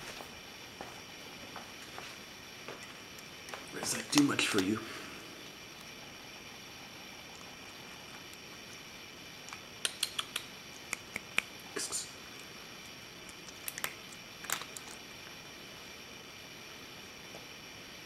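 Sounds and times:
cat crunching dry kibble: 0:02.8 - 0:15.4.

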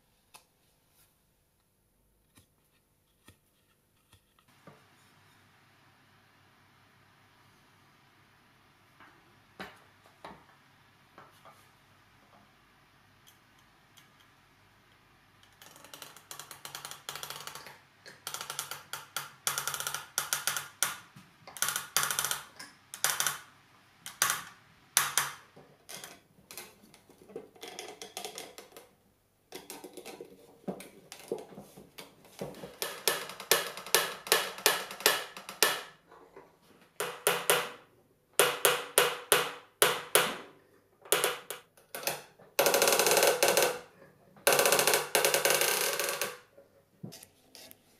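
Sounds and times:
sharp clicks and wooden knocks: 0:37.0 - 0:37.8.

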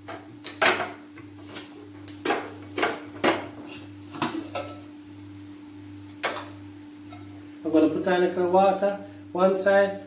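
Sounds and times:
metal pots and lids clanking: 0:04.2 - 0:04.9.

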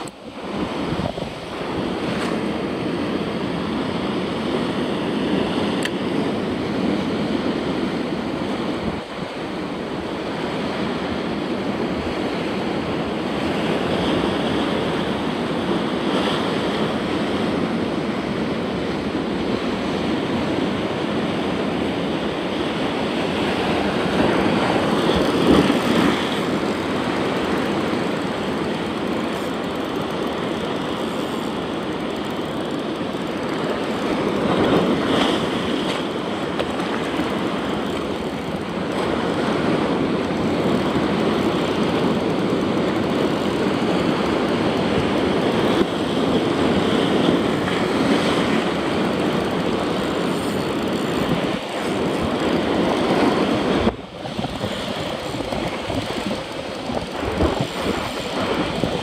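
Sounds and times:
surf rushing over rocks: 0:00.0 - 0:59.0
wave crashing: 0:13.2 - 0:31.7, 0:33.5 - 0:59.0.

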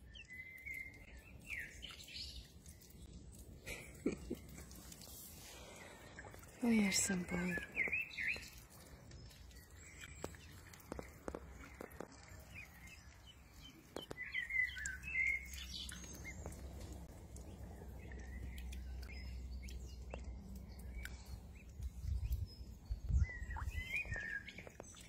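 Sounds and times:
ducklings peeping: 0:07.2 - 0:25.0.

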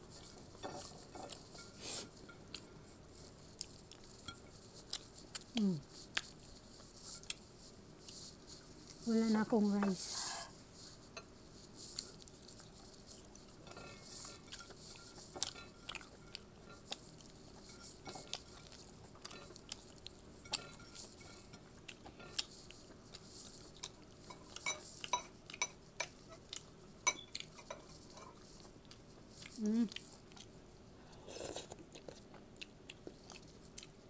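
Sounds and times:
person chewing with mouth clicks: 0:04.9 - 0:06.5, 0:28.6 - 0:30.5, 0:31.2 - 0:34.0.

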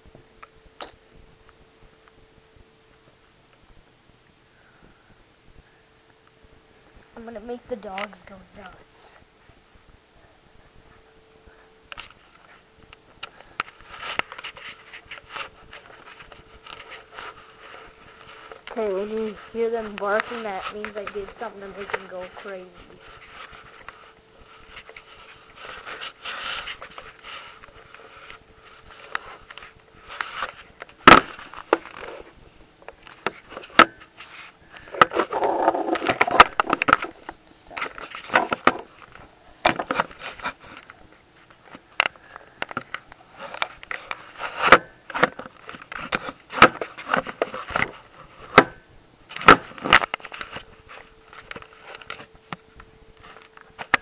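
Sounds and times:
camera rubbing on fabric: 0:13.4 - 0:39.2, 0:39.8 - 0:41.9, 0:43.2 - 0:48.5.

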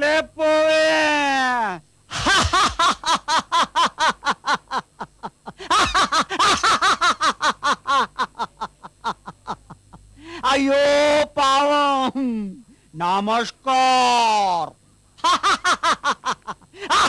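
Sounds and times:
man laughing gloatingly: 0:02.1 - 0:10.2, 0:12.0 - 0:12.6, 0:15.2 - 0:17.0.

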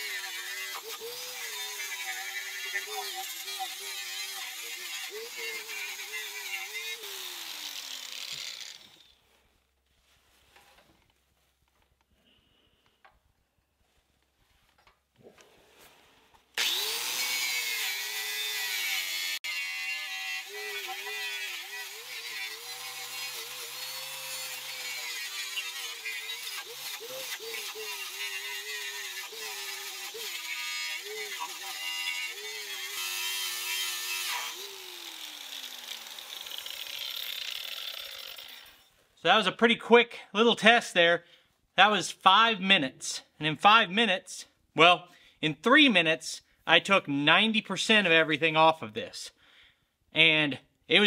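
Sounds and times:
angle grinder with wire wheel: 0:00.0 - 0:09.2, 0:16.6 - 0:38.9.

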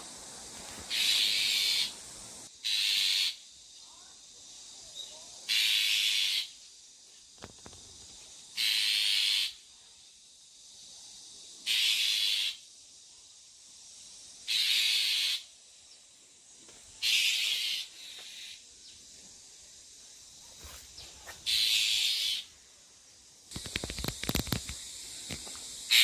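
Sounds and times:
bird giving harsh hissing calls: 0:00.8 - 0:03.8, 0:05.4 - 0:06.7, 0:08.4 - 0:09.7, 0:11.5 - 0:12.8, 0:13.9 - 0:15.6, 0:17.0 - 0:18.9, 0:20.4 - 0:22.7, 0:23.5 - 0:26.0.

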